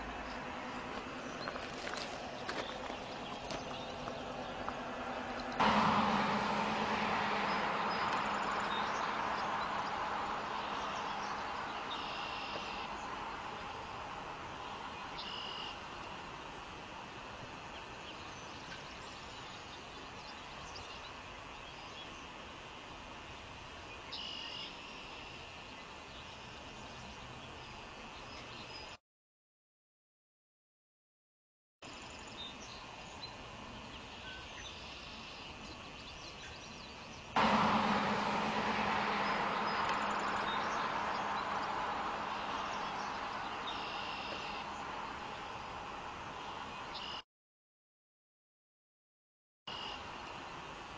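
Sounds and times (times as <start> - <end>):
low hum: 0.0 - 19.7, 37.4 - 46.4
loud rushing noise: 2.1 - 12.0, 37.4 - 46.1
bird chirps: 6.2 - 14.0, 14.6 - 15.8, 24.0 - 29.0, 38.2 - 45.8, 46.4 - 47.2.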